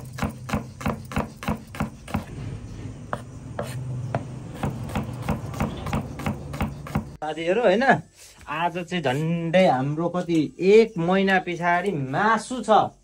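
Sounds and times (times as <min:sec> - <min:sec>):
knife chopping on cutting board: 0:00.0 - 0:02.4, 0:03.1 - 0:07.2.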